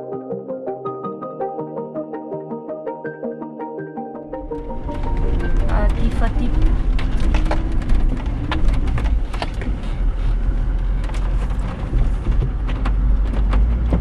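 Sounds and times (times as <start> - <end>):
vehicle knocks and rattles: 4.4 - 14.0.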